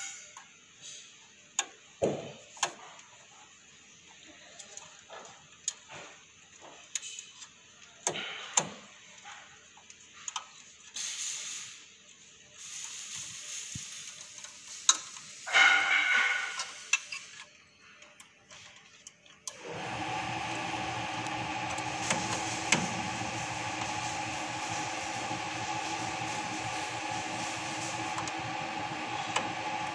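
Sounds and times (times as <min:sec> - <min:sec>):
small clicks and rustles: 0:02.6 - 0:08.0, 0:16.7 - 0:19.6.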